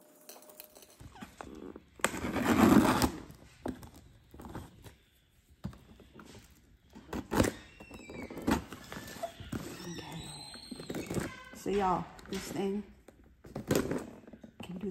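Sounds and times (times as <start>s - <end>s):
cardboard tearing scrape: 2.0s - 3.4s.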